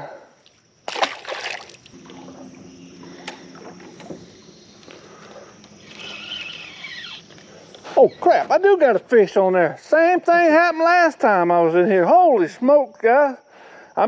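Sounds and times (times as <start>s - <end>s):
fish splashing into water: 0.8s - 5.6s
electric motor humming: 2.0s - 7.6s.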